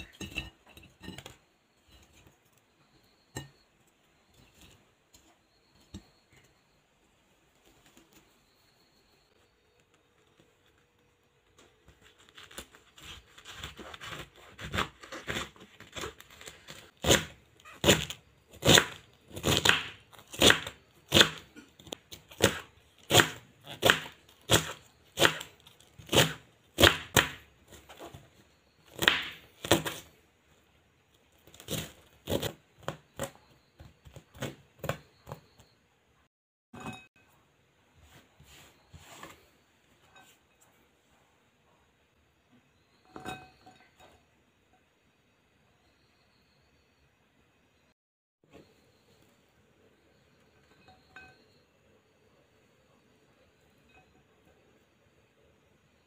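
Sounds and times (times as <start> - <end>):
knife cutting cabbage on board: 12.2 - 21.5, 22.1 - 28.1, 28.9 - 30.1, 31.4 - 35.4.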